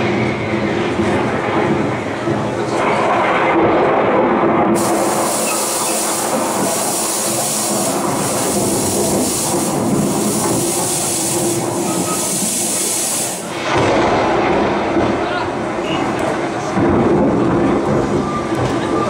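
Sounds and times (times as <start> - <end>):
fog machine hissing: 4.8 - 13.6.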